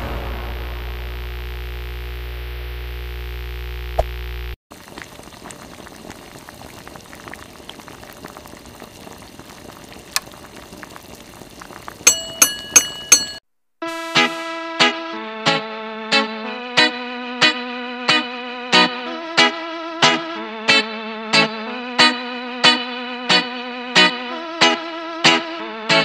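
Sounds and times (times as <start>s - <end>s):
crackling bubbling liquid: 0.7s - 13.2s.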